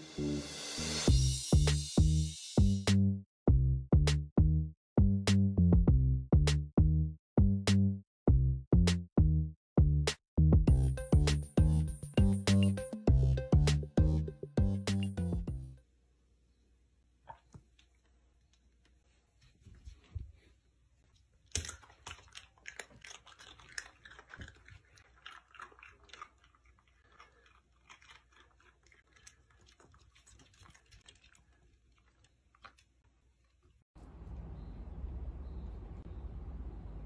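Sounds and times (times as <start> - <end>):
dog crunching a hard biscuit: 21.4 - 33.0
steady low noise: 34.0 - 37.0.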